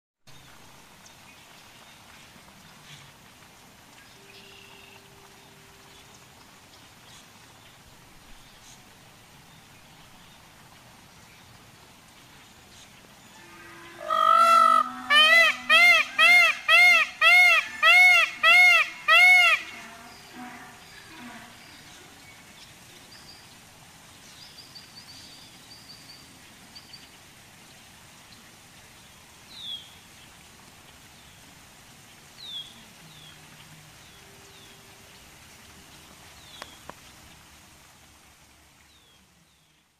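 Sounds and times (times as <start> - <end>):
faint steady hiss: 0.2 - 39.9
small birds chirping: 29.0 - 37.5
faint sharp click: 36.5 - 37.0.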